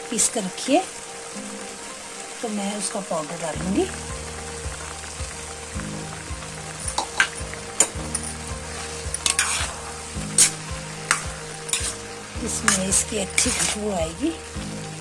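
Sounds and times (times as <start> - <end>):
carrots sizzling in a pan: 0.0 - 15.0
spoon scraping a pan: 6.9 - 14.0.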